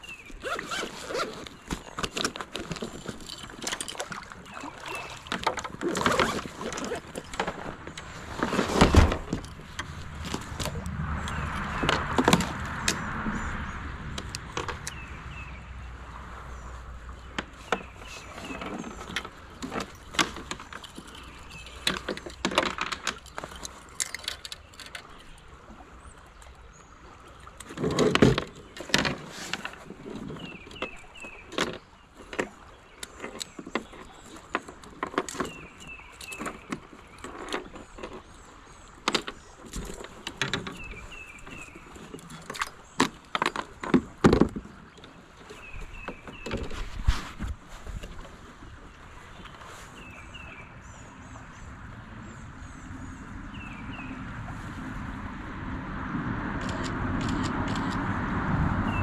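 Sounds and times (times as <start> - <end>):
fishing tackle clicking and rattling: 2.0 - 8.1, 18.6 - 25.3
knocking and rustling: 5.2 - 10.9, 17.3 - 24.9, 39.1 - 44.8.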